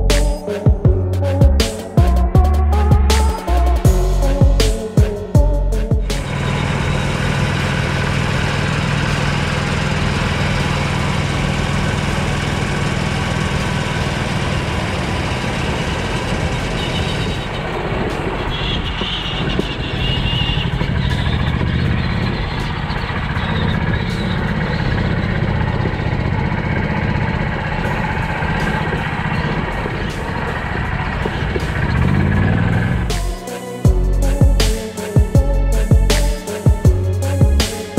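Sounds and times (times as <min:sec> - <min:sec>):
rising whine: 0:00.0 - 0:37.7
vehicle driving noise: 0:00.0 - 0:37.8.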